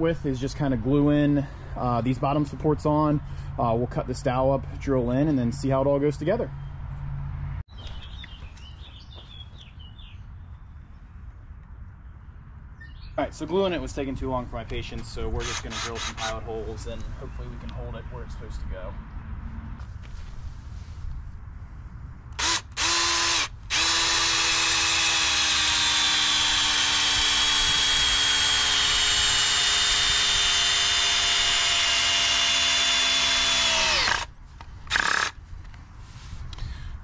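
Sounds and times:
cordless drill boring into wood: 0:15.4 - 0:16.3, 0:22.4 - 0:34.3, 0:34.9 - 0:35.4.

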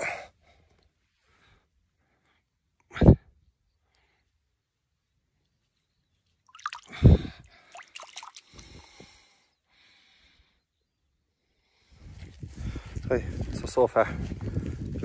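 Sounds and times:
water splashing: 0:06.5 - 0:09.0
water dripping and sloshing: 0:06.5 - 0:09.1.

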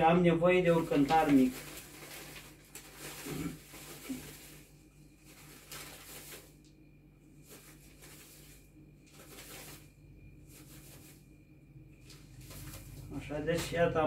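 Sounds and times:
paper bag rustling: 0:00.6 - 0:06.6, 0:07.4 - 0:11.3, 0:12.0 - 0:13.8
dried flowers pouring into bowl: 0:00.7 - 0:06.5.

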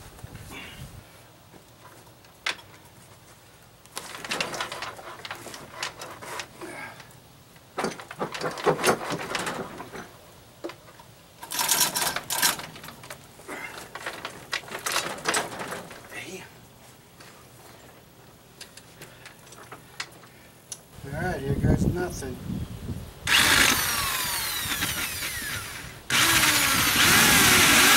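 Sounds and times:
chain hoist clicking and rattling: 0:11.4 - 0:16.1.

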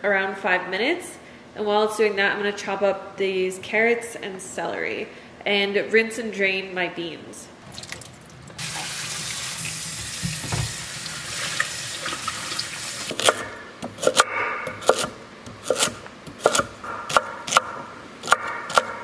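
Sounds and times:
tap water running onto beans: 0:07.7 - 0:13.1
knife chopping on wooden board: 0:13.1 - 0:19.0.

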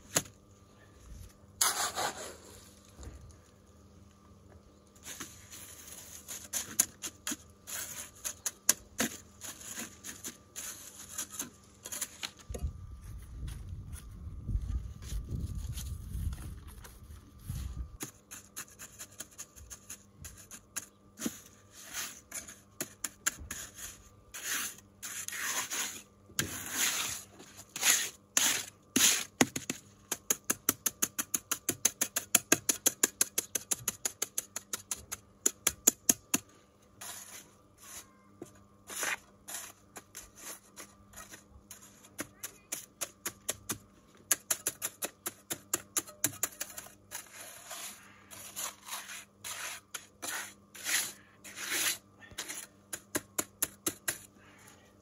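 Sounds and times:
trowel scraping wet concrete: 0:01.6 - 0:02.7, 0:05.0 - 0:12.4, 0:18.0 - 0:36.4, 0:37.0 - 0:38.1, 0:38.9 - 0:54.3
trowel tapping concrete: 0:29.0 - 0:36.4, 0:41.3 - 0:46.9.

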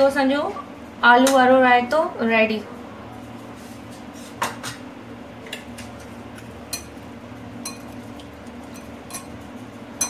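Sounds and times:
steady low hum: 0:00.0 - 0:10.0
spoon clinking against bowl: 0:07.6 - 0:07.9.

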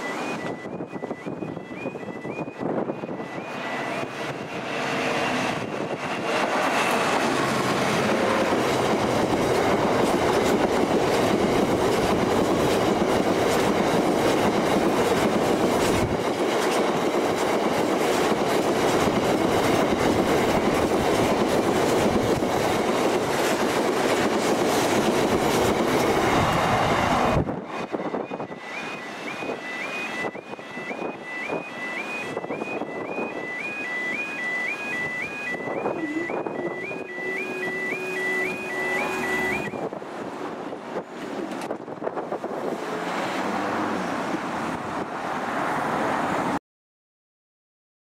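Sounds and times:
level crossing alarm warbling: 0:00.0 - 0:06.0, 0:26.0 - 0:39.9
diesel locomotive passing: 0:00.0 - 0:46.6
wagon wheels on rail: 0:03.5 - 0:45.7.

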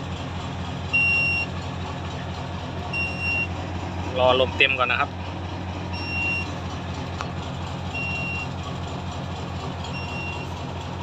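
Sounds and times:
diesel truck engine idling: 0:00.0 - 0:11.0
short high warning beeps: 0:01.0 - 0:01.5, 0:02.9 - 0:03.5, 0:06.0 - 0:06.5, 0:08.0 - 0:08.5, 0:10.0 - 0:10.5.

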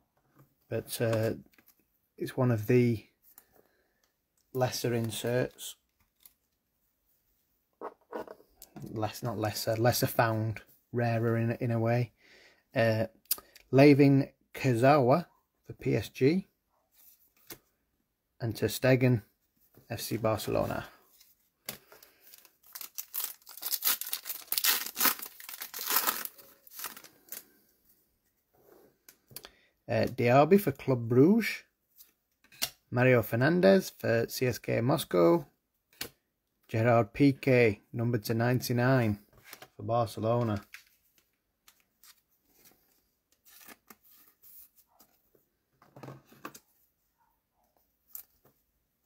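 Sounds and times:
plastic sleeve rustling: 0:20.3 - 0:27.6
foil wrapper tearing and crinkling: 0:22.3 - 0:27.4.

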